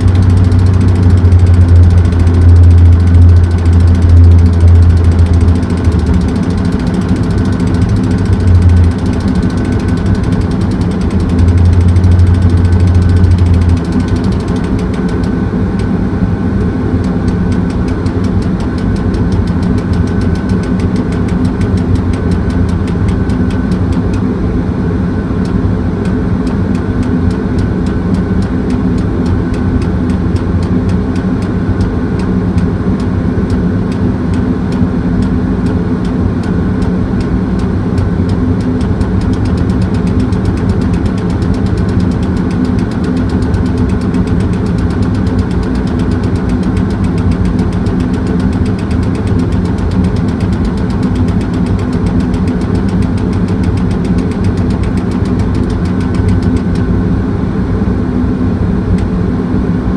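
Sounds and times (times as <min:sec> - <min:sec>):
faint fast ticking: 0:00.0 - 0:15.3, 0:37.6 - 0:56.8
diesel engine running: 0:00.0 - 0:57.4.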